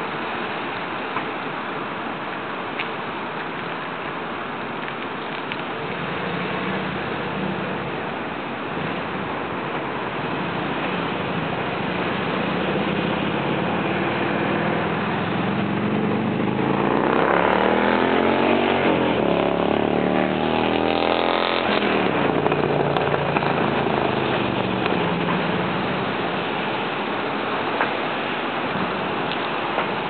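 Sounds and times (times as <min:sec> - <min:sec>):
outdoor background noise: 0:00.0 - 0:30.0
engine passing by: 0:05.8 - 0:08.1, 0:10.2 - 0:27.7.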